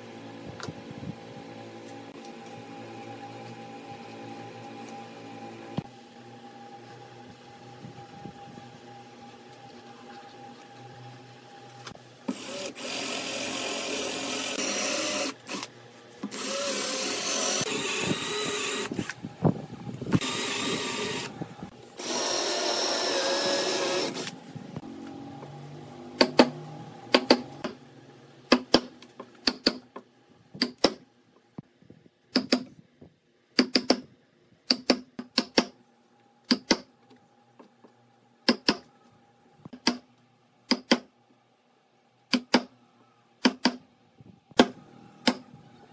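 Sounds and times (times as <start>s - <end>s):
power drill boring into wood: 12.3s - 15.7s, 16.3s - 19.2s, 20.2s - 21.3s, 22.0s - 24.3s.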